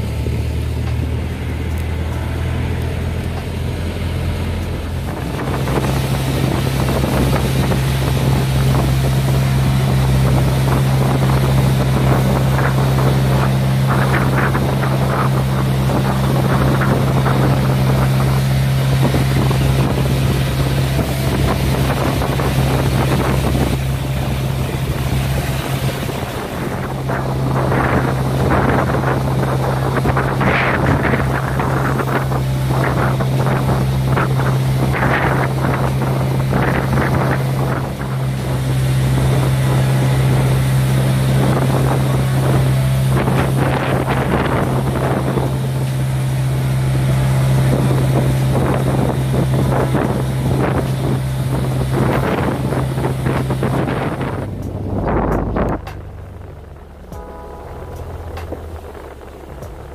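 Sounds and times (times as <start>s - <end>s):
boat engine drone: 0.0s - 59.9s
water rushing past hull: 0.0s - 59.9s
wind on microphone: 0.0s - 59.9s.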